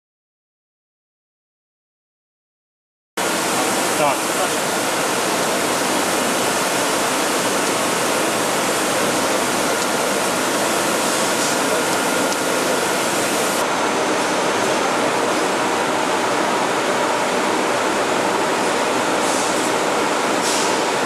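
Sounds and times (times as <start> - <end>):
factory machinery rushing hiss: 3.2 - 15.6, 18.5 - 21.0.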